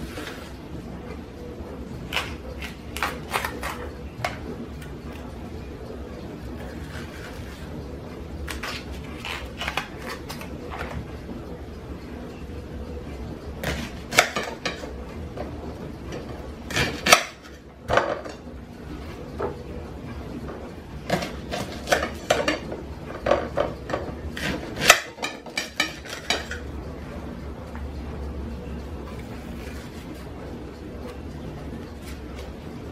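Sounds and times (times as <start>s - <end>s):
knife cutting leeks: 8.5s - 10.5s.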